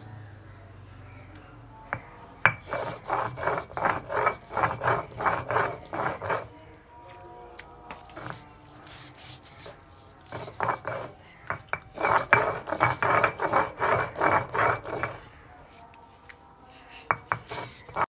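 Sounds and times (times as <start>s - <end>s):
stone grinding on stone: 2.4s - 6.7s, 8.0s - 15.4s, 17.1s - 18.0s.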